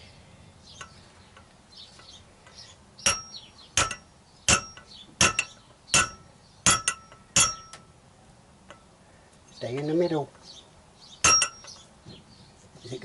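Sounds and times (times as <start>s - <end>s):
hammer clanking on steel tube: 3.0s - 7.9s, 11.2s - 11.8s.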